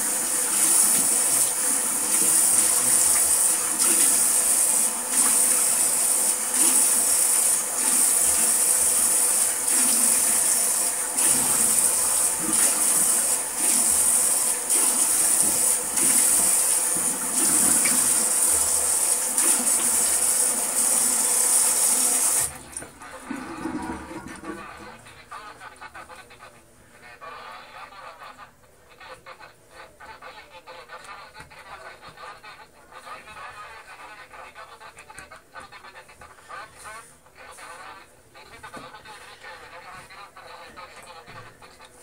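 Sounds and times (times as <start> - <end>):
shower spraying water: 0.0 - 22.9.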